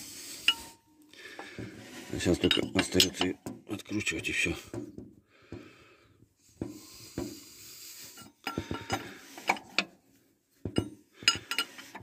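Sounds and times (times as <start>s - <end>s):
wrench clinking on steel: 2.3s - 4.1s, 10.7s - 12.0s.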